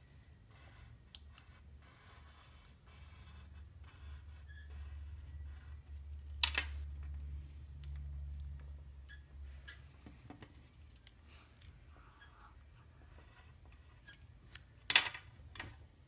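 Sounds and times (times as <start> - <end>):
low steady hum: 0.0 - 16.0
pen scratching on paper: 0.5 - 5.9.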